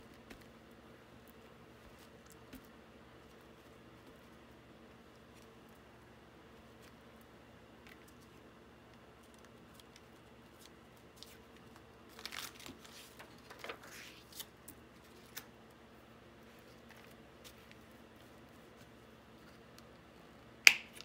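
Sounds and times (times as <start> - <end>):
paper rustling: 9.2 - 15.5.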